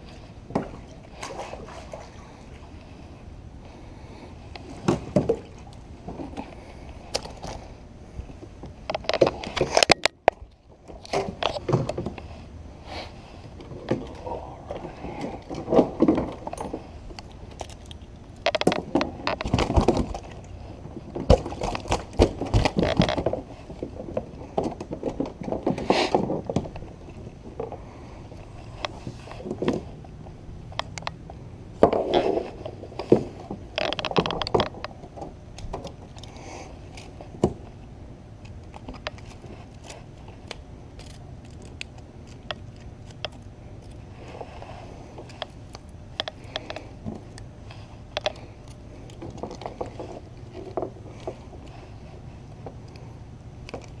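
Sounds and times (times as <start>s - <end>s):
hands and tackle scraping plastic hull: 13.4s - 17.7s.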